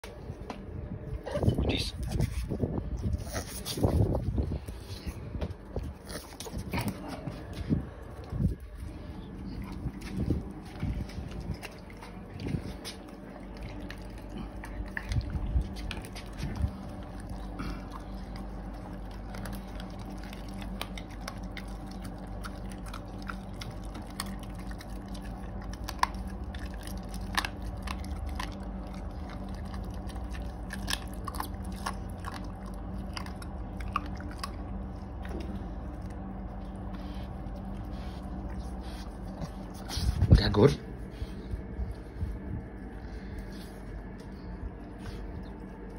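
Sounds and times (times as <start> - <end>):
dog chewing crunchy treat: 0.1 - 45.9.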